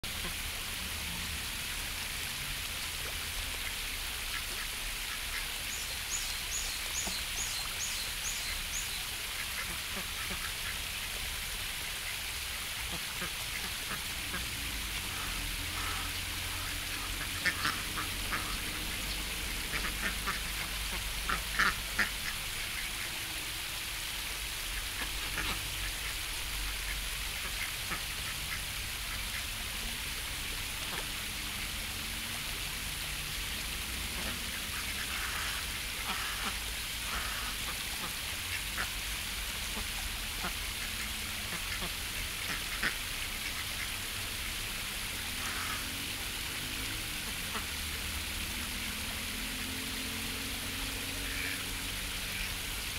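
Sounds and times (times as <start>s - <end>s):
ducks quacking: 9.5s - 10.8s, 12.9s - 23.1s, 24.8s - 26.2s, 34.1s - 38.9s, 39.8s - 43.9s, 45.4s - 45.9s, 51.1s - 51.7s.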